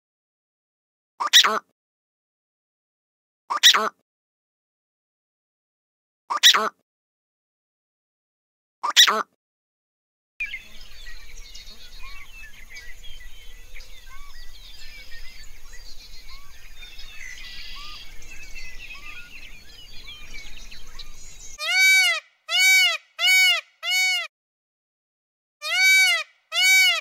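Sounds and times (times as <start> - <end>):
small birds chirping: 10.4 - 21.6
loud animal calls: 25.6 - 27.0.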